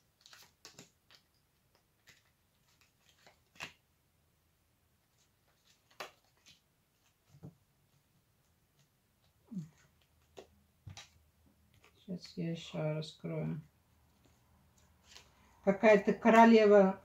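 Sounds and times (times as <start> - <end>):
cards rustling: 0.0 - 3.8, 5.0 - 7.4, 8.7 - 12.7, 14.0 - 15.6.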